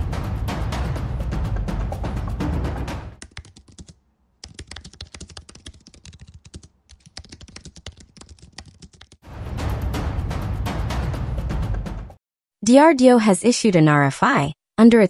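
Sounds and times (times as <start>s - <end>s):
loud music: 0.0s - 3.2s, 9.3s - 12.2s
fast keyboard typing: 3.2s - 9.2s.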